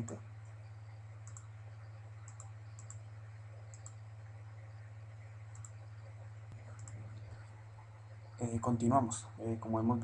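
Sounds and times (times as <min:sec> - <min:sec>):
low electrical hum: 0:00.0 - 0:10.0
computer mouse clicking: 0:01.2 - 0:01.5, 0:02.2 - 0:03.1, 0:03.7 - 0:04.0, 0:05.5 - 0:05.9, 0:06.5 - 0:07.4.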